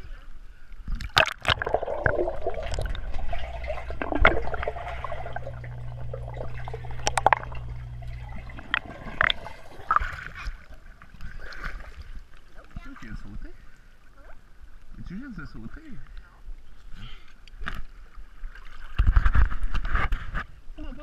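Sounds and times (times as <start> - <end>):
muffled underwater rushing: 1.1 - 12.0
steady low hum: 1.6 - 11.4.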